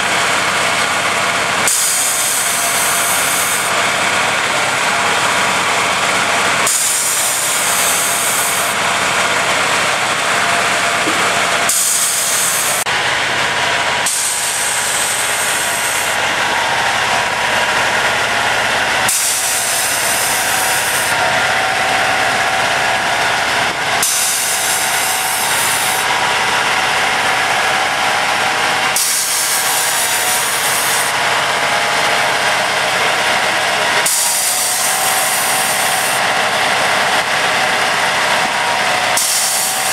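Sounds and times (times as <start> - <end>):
track machine engine whine: 0.0 - 39.9
high hiss: 14.0 - 16.2.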